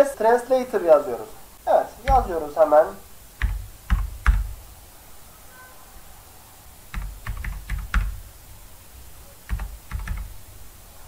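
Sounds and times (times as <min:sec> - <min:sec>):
keyboard typing: 0:02.0 - 0:02.4, 0:03.4 - 0:04.6, 0:06.9 - 0:08.3, 0:09.5 - 0:10.4.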